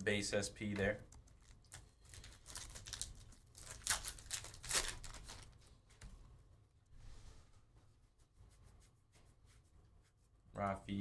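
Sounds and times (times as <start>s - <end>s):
wrapper tearing and crinkling: 1.4s - 5.5s.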